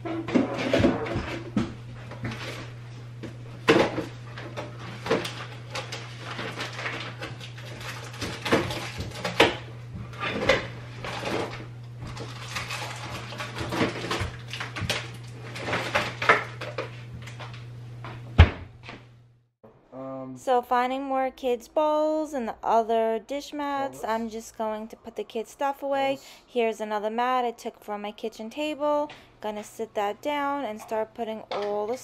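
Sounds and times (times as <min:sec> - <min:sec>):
plastic dishes clattering: 0:10.2 - 0:16.9.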